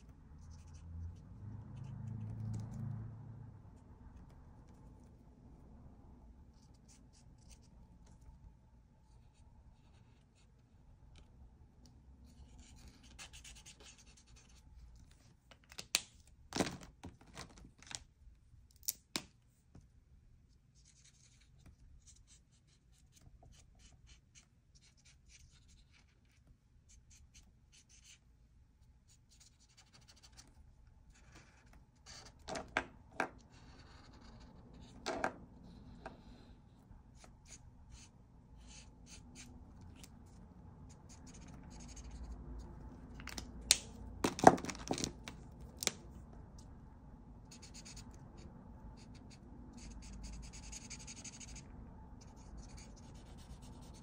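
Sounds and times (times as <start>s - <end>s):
markers scratching on paper: 0.0s - 2.8s, 12.3s - 15.2s, 20.8s - 28.2s, 33.4s - 35.0s, 37.1s - 42.7s, 47.5s - 48.4s, 49.0s - 54.0s.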